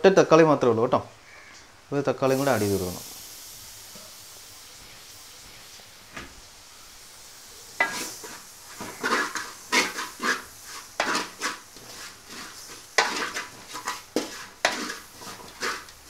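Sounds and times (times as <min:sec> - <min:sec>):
wooden spatula scraping a pot: 0:07.8 - 0:16.0.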